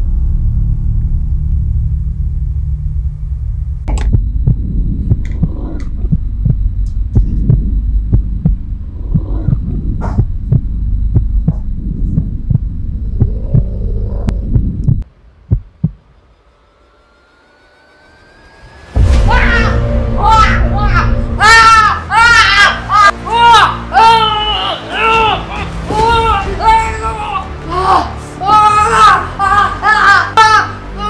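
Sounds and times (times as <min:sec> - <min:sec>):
low throbbing drone: 0:00.0 - 0:24.0.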